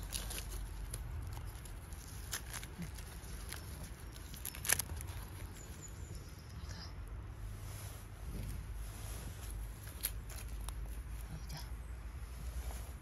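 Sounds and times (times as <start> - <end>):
mushrooms snapping and rustling: 0.0 - 6.6, 9.4 - 11.4.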